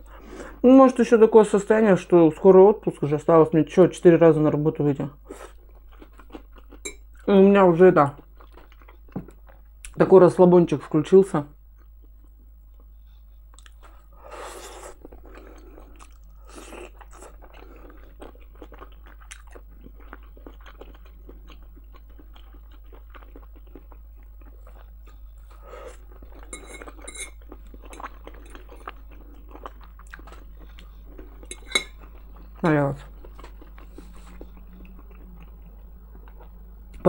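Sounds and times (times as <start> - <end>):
person chewing food: 5.2 - 7.3, 8.2 - 10.0, 11.8 - 37.0.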